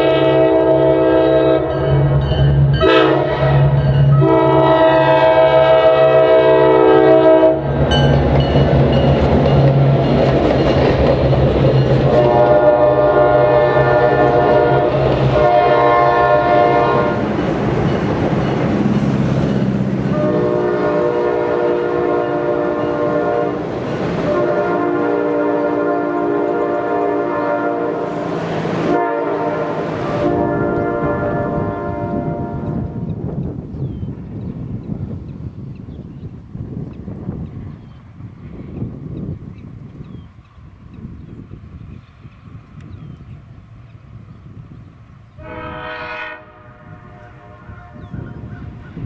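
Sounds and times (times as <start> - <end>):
locomotive horn blasts: 0.0 - 2.2, 2.8 - 7.8, 12.0 - 17.4, 20.0 - 33.1, 45.4 - 49.0
train cars rolling on rails: 0.0 - 46.2, 47.1 - 49.0
locomotive engines rumbling: 0.0 - 49.0.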